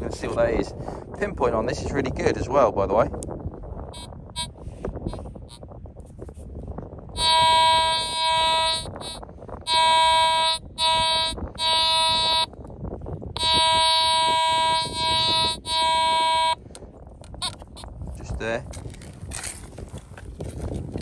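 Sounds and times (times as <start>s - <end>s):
metal detector buzzy tone: 3.9s - 5.6s, 7.1s - 12.5s, 13.3s - 16.7s, 17.4s - 17.9s.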